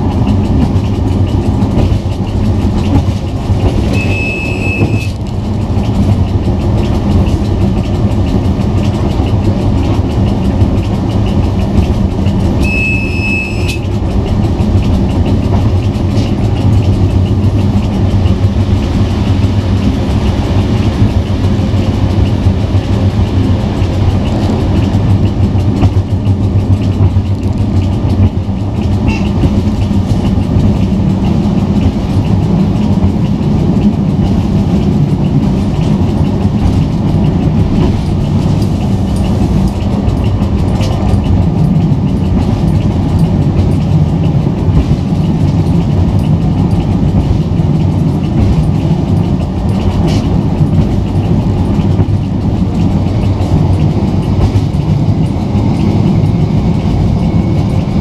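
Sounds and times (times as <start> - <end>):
diesel engine drone: 0.0 - 58.0
wheels rumbling on rail: 0.0 - 58.0
short high-pitched beep: 3.9 - 5.2, 12.6 - 13.8.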